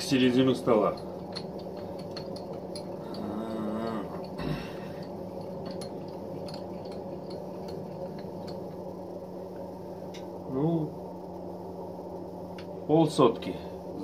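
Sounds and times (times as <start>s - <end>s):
faint regular ticking: 0.0s - 10.4s
milling machine hum: 0.0s - 14.0s
person humming: 3.0s - 4.9s.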